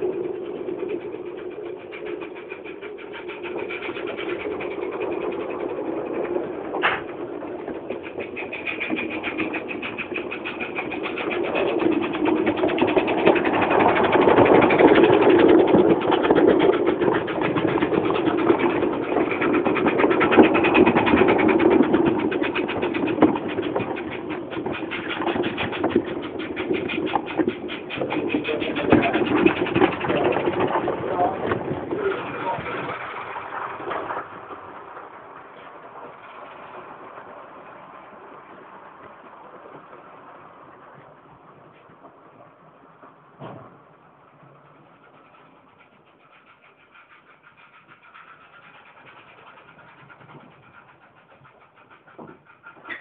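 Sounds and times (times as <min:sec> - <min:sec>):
model steam locomotive running on track: 0:00.0 - 0:53.0.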